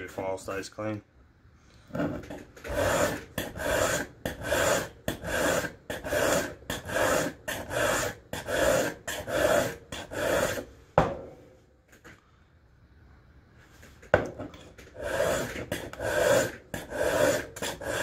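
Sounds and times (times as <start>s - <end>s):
file rasping on steel: 2.0s - 10.7s, 14.8s - 18.0s.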